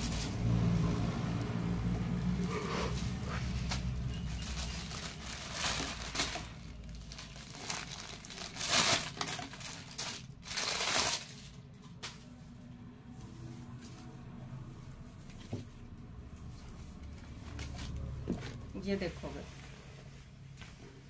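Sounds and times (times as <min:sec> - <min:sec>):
fabric rustling: 0:02.6 - 0:11.6.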